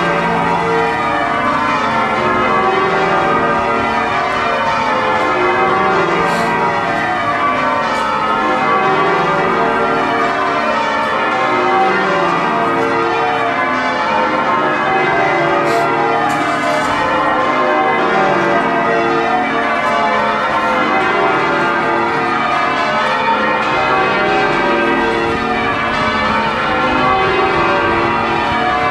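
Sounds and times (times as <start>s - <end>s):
church bells change ringing: 0.0s - 28.9s.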